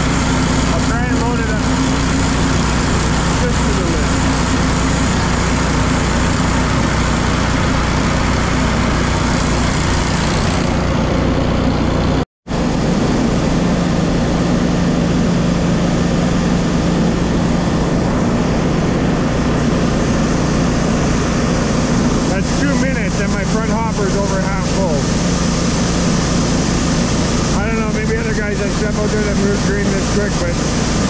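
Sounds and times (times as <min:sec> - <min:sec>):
grain rushing on conveyor: 0:00.0 - 0:10.9, 0:19.2 - 0:31.0
engine drone: 0:00.0 - 0:31.0.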